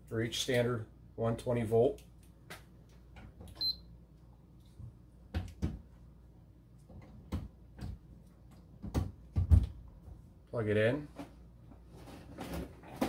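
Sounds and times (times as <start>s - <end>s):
knocks and clunks of handling: 6.8s - 10.2s.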